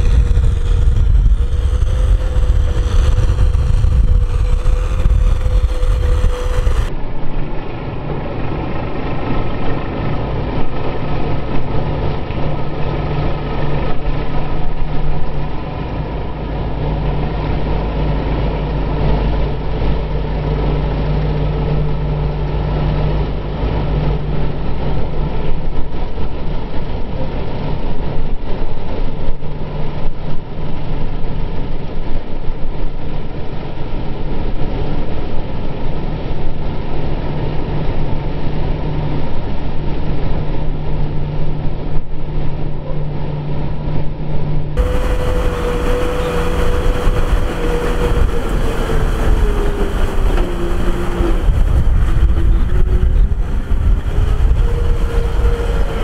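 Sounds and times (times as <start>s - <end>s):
tractor diesel engine: 0.0s - 6.9s, 44.8s - 56.0s.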